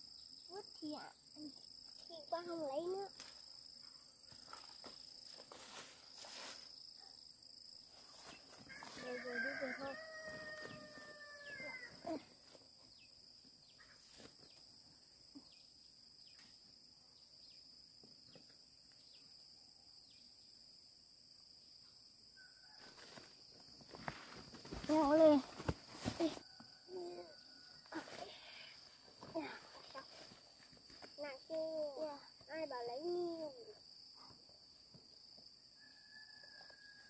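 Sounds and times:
rooster crowing: 0:08.7 - 0:12.0, 0:35.8 - 0:37.0.

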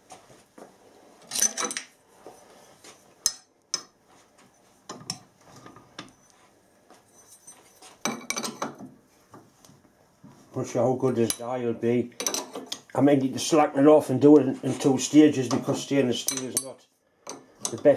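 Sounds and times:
steel tools clinking and clattering: 0:01.3 - 0:02.0, 0:07.1 - 0:08.8, 0:12.2 - 0:12.8, 0:16.2 - 0:17.9.

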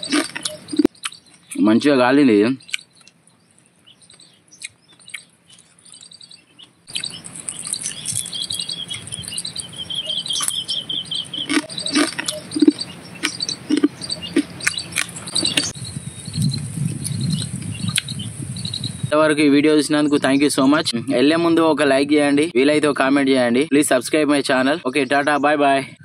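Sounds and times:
clicks and crunches of biting: 0:00.0 - 0:01.6, 0:04.6 - 0:08.3, 0:10.4 - 0:10.6, 0:11.4 - 0:15.7
small birds chirping: 0:00.0 - 0:26.0.

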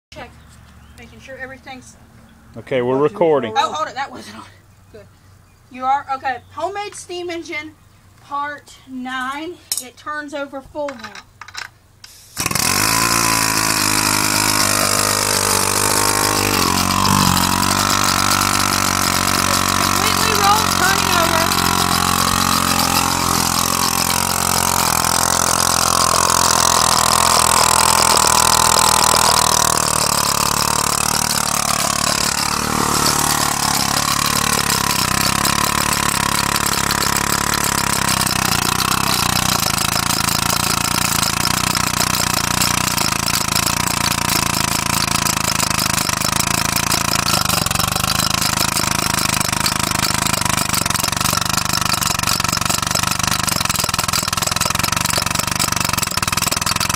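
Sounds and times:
air hissing: 0:12.0 - 0:43.8
steam engine running on air: 0:12.3 - 0:56.9.

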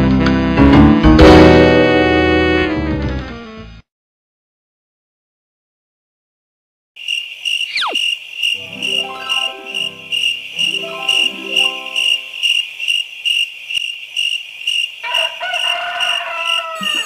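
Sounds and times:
cricket chirping: 0:07.0 - 0:17.0
falling whistle: 0:07.7 - 0:08.0
runs of falling notes: 0:08.6 - 0:12.6.

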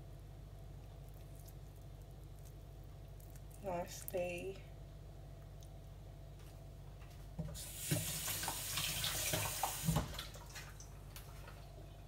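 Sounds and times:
tap running into a sink: 0:07.4 - 0:10.7.

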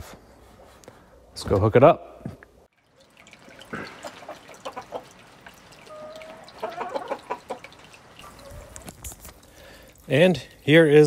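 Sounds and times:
chickens clucking: 0:03.4 - 0:09.4.

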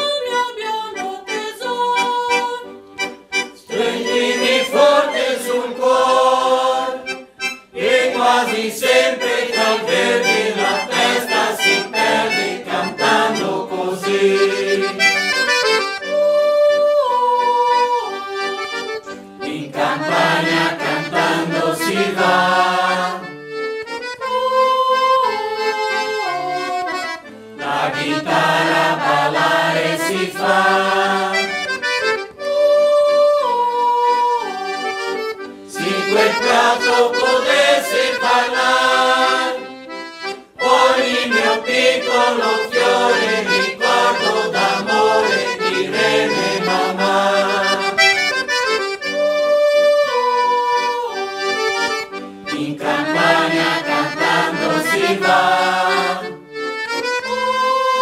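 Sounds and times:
accordion: 0:00.0 - 0:58.0
mixed choir singing: 0:03.6 - 0:07.2, 0:07.8 - 0:15.1, 0:19.4 - 0:23.3, 0:27.6 - 0:31.6, 0:35.7 - 0:39.8, 0:40.6 - 0:48.1, 0:52.5 - 0:56.4.

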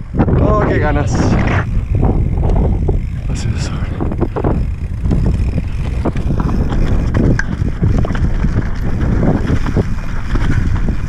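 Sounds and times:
bike rattling over bumps: 0:00.0 - 0:11.0
wind rumble on microphone: 0:00.0 - 0:11.0
tyres crunching over loose stones: 0:04.8 - 0:11.0.

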